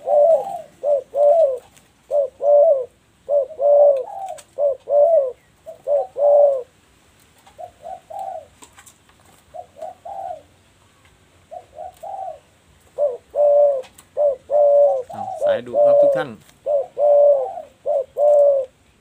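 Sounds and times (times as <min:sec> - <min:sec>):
doves cooing: 0:00.0 - 0:10.7, 0:11.4 - 0:19.0.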